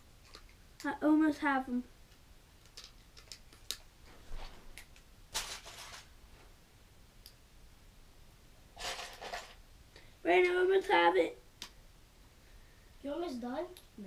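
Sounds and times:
plastic pieces clattering: 5.3 - 6.1, 8.8 - 9.6.

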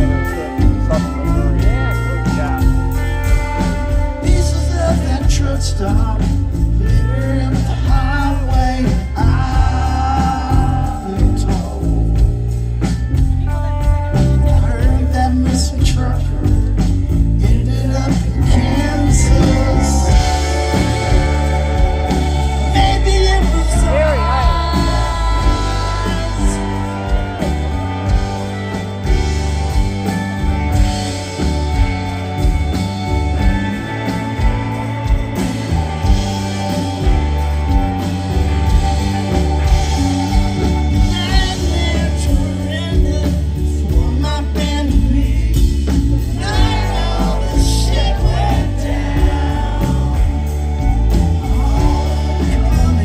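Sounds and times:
person singing: 0.0 - 12.4, 13.4 - 53.0
bass: 0.0 - 53.0
drums: 0.0 - 53.0
electric guitars: 0.0 - 53.0.

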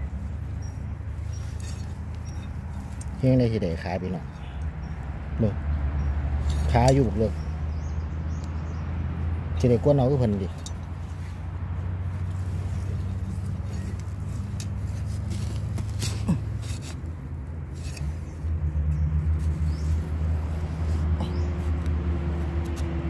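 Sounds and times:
metal blade scraping soil: 0.6 - 3.2, 6.4 - 7.2, 12.2 - 18.4.

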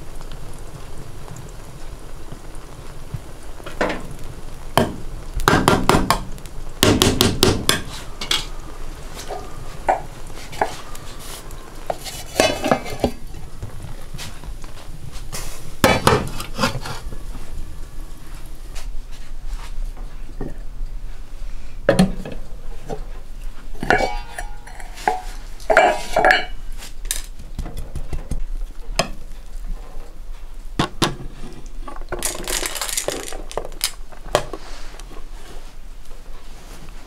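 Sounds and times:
metal utensils clinking on pot: 12.0 - 13.2, 23.8 - 27.3
pot lid set down: 23.8 - 26.6.

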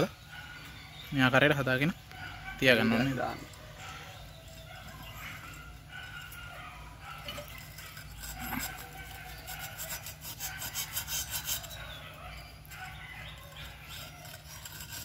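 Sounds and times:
metal tool scraping metal: 7.1 - 15.0.

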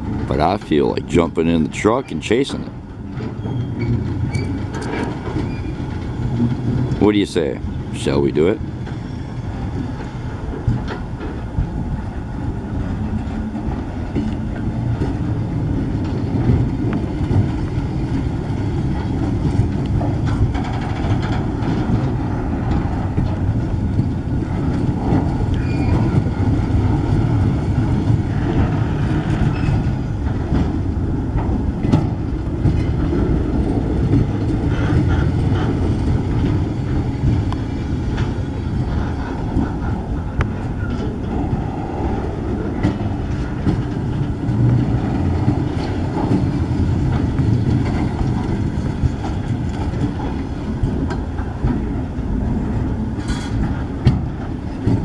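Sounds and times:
steel wheels rumbling on rail: 0.0 - 55.0
sharp clicks and knocks: 2.6 - 7.0, 18.9 - 38.6.

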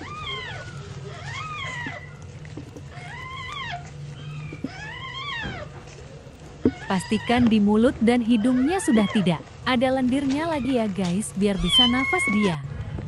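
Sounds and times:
low steady hum: 0.0 - 13.0
kitten mewing: 11.6 - 12.6.

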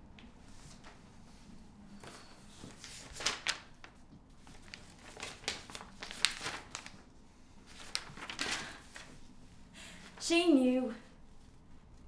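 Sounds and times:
paper rustling and crinkling: 0.4 - 9.4.

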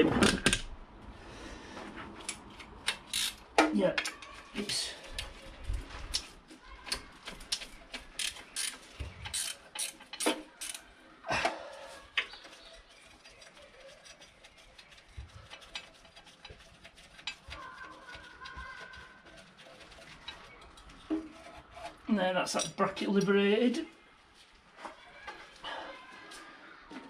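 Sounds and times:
spanner ratcheting clicks: 2.8 - 3.4, 7.5 - 10.8.

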